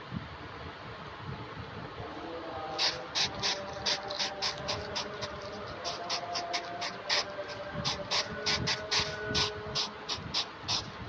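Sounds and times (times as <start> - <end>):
hedgehog sniffing and huffing: 2.8 - 11.0.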